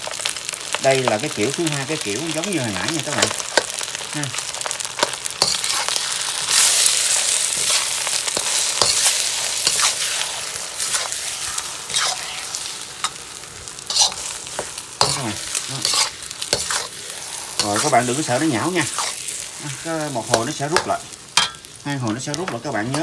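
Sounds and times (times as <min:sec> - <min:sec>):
rice and egg sizzling in a wok: 0:00.0 - 0:23.0
metal spatula scraping a pan: 0:03.1 - 0:13.2, 0:13.8 - 0:21.7.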